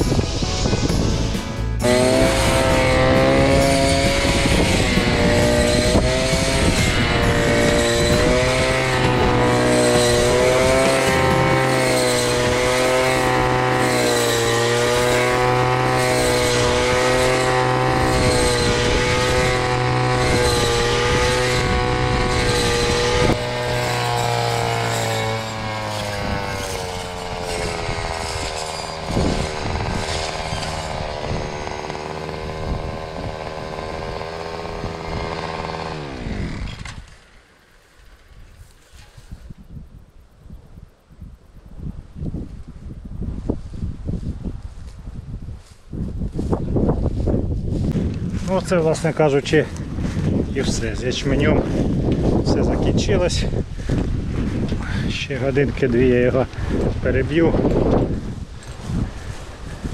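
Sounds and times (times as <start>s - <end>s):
two-stroke engine running hard: 1.8s - 37.1s, 47.1s - 52.4s.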